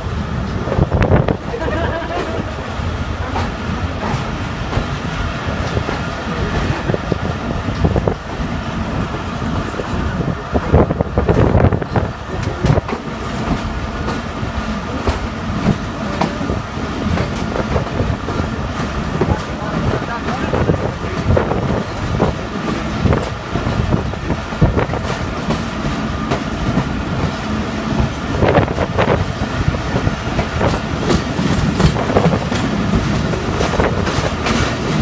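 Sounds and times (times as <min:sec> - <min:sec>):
train clatter: 0:00.0 - 0:35.0
train wheels rumbling on track: 0:00.0 - 0:35.0
wheels clicking over rails: 0:11.2 - 0:35.0.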